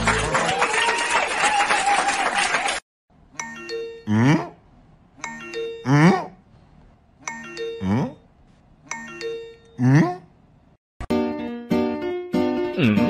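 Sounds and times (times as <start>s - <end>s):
falling chime melody: 3.4s - 4.2s.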